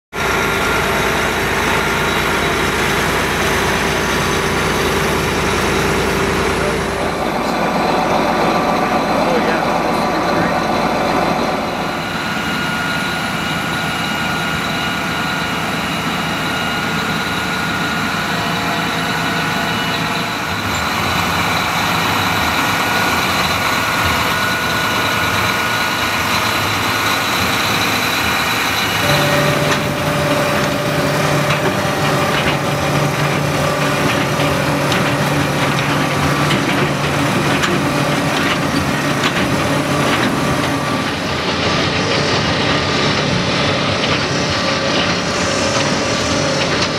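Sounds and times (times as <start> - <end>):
tractor diesel engine running: 0.1 - 46.9
second steady drone: 0.2 - 46.9
manure scraper scraping: 27.4 - 46.9.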